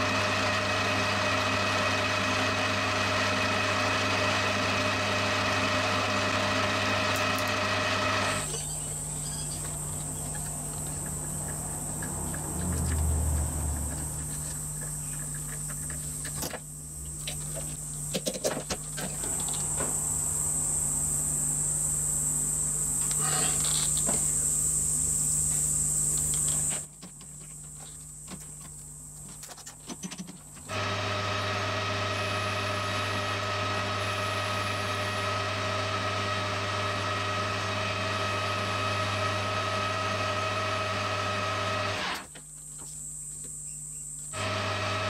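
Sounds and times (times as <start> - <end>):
high-pitched electrical whine: 8.2 - 26.9.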